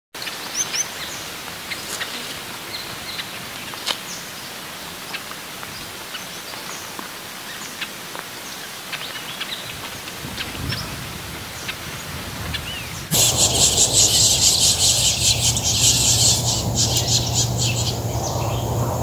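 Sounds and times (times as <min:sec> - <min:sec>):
background hiss: 0:13.0 - 0:19.0
finches chirping: 0:13.1 - 0:19.0.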